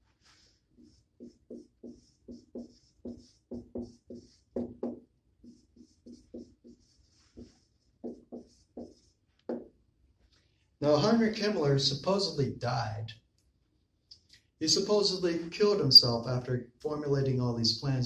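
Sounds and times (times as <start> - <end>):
marker squeaking on whiteboard: 0.2 - 9.8, 15.9 - 16.2.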